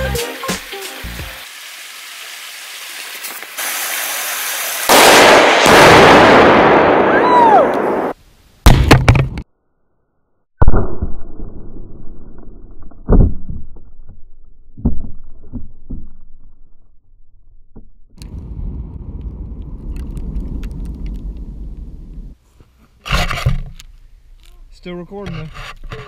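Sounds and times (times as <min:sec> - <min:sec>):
loud explosive blast echoing: 0:04.9 - 0:09.0.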